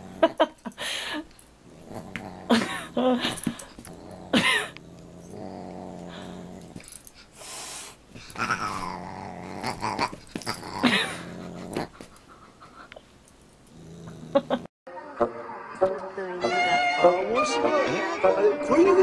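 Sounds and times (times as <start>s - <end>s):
dog growling: 0.0s - 0.6s, 1.6s - 7.2s, 8.2s - 12.2s, 13.6s - 14.7s.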